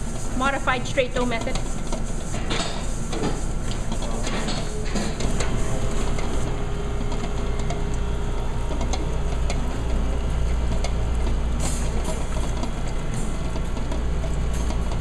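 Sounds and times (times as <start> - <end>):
mixer motor humming: 4.8 - 15.0.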